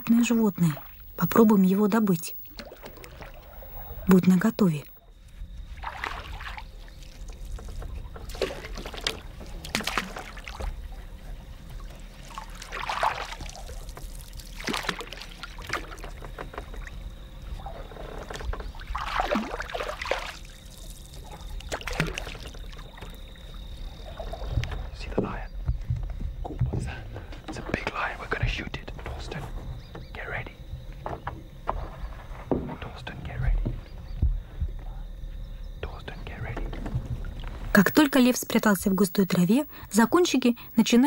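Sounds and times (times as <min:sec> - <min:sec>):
poles dipping in water: 0:02.4 - 0:04.0, 0:05.8 - 0:10.8, 0:11.8 - 0:17.0, 0:17.6 - 0:23.2
water splashing against canoe hull: 0:02.4 - 0:04.2, 0:05.4 - 0:27.8.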